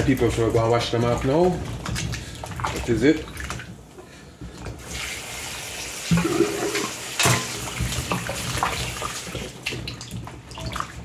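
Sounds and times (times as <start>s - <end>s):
water splashing: 0.0s - 11.0s
tap running into sink: 6.0s - 9.3s.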